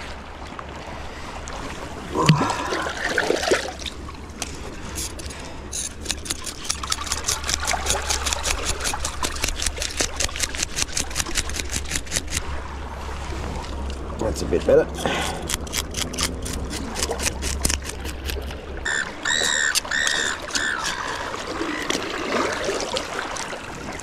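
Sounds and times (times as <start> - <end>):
knife scraping fish scales: 4.8 - 12.4, 15.0 - 18.5, 19.3 - 21.2.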